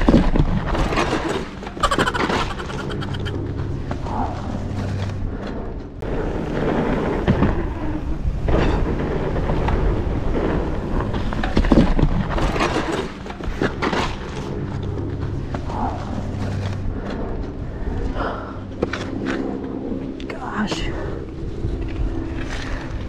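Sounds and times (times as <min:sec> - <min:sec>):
mountain bike rumble and rattle: 0:03.5 - 0:20.1, 0:21.2 - 0:23.0.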